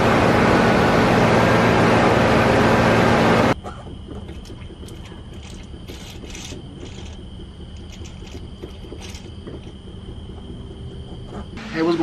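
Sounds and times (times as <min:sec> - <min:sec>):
faint ticks and scrapes: 0:04.3 - 0:09.8
steady low rumble: 0:04.4 - 0:12.0.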